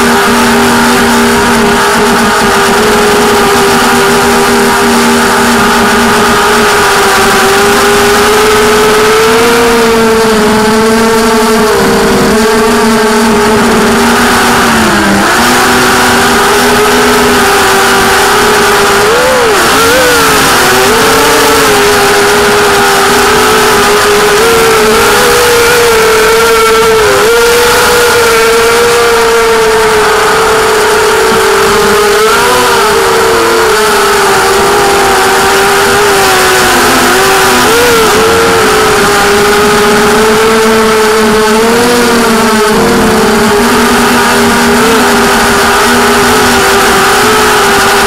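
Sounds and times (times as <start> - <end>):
quadcopter motors whining: 0.0 - 48.0.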